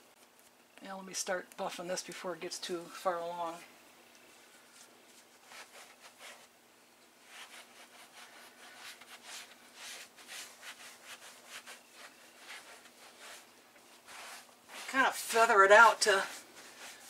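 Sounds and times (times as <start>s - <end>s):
sponge swishing on upholstery: 7.2s - 17.0s.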